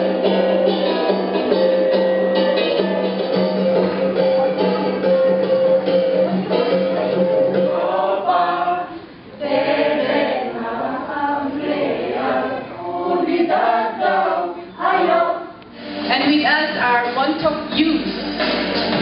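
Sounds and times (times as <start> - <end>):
group singing chant unaccompanied: 7.1 - 15.6.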